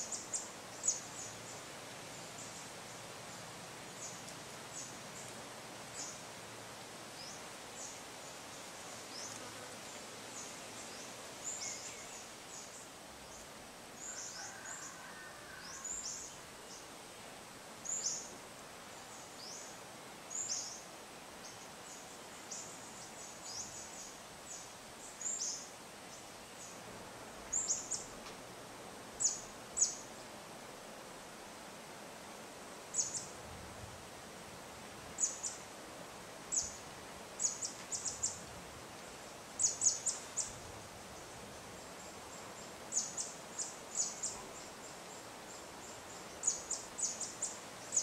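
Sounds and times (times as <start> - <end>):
light wind: 0.0 - 48.0
insects hissing: 39.1 - 48.0.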